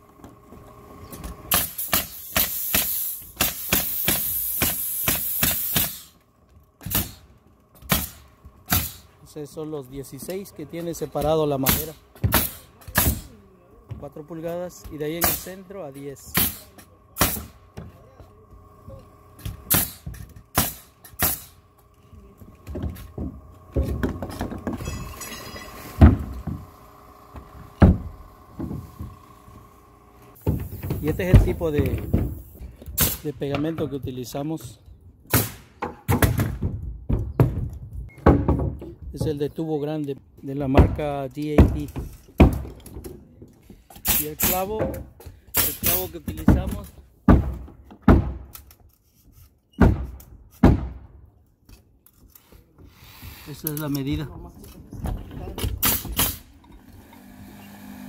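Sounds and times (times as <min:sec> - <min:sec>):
nail gun firing: 0:01.5 - 0:06.2, 0:06.8 - 0:09.1, 0:11.6 - 0:13.4, 0:15.2 - 0:15.6, 0:16.3 - 0:17.6, 0:19.6 - 0:21.6, 0:33.0 - 0:33.3, 0:35.3 - 0:36.6, 0:44.0 - 0:44.8, 0:45.5 - 0:46.2, 0:49.8 - 0:51.1, 0:55.6 - 0:56.5
heavy thuds of plywood: 0:27.7 - 0:29.1, 0:35.8 - 0:39.3, 0:46.3 - 0:48.5, 0:49.8 - 0:51.1.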